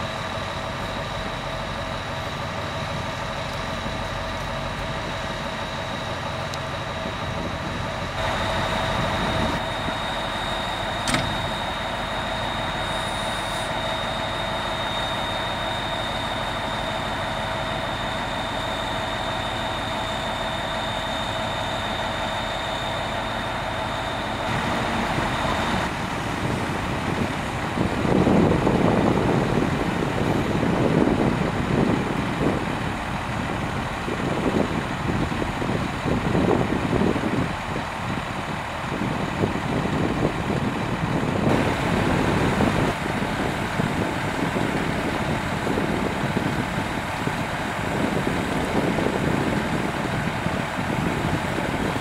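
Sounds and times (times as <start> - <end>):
diesel engine idling: 0.0 - 52.0.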